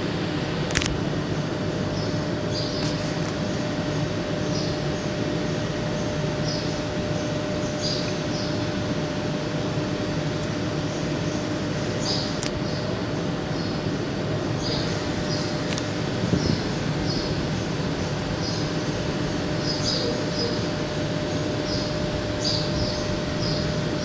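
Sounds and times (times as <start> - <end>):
electric train humming: 0.0 - 24.0.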